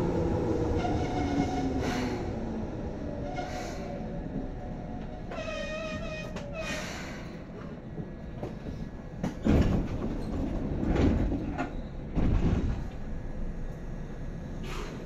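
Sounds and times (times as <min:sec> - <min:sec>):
train doors sliding shut: 0:00.6 - 0:02.5, 0:03.2 - 0:13.2, 0:14.5 - 0:15.0.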